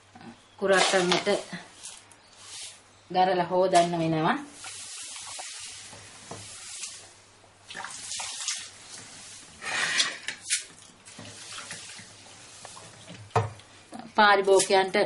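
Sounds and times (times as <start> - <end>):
water swishing and splashing: 4.5 - 13.7.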